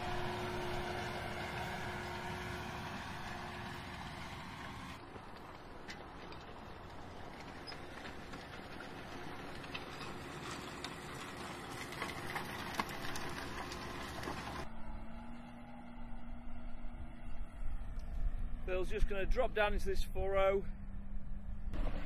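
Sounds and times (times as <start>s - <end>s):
soil and stones rattling on plough: 0.0s - 14.7s
steady engine hum: 0.0s - 22.0s
tractor diesel engine under load: 0.0s - 22.0s.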